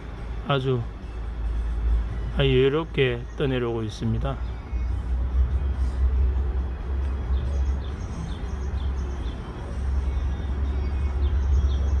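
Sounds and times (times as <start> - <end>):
small bird chirping: 7.1 - 12.0.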